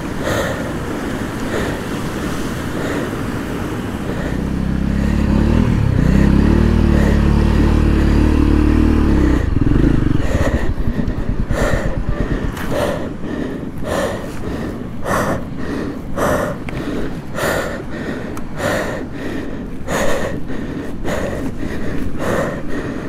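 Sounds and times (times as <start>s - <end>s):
person breathing hard: 0.0s - 23.0s
low rumble: 4.1s - 15.0s.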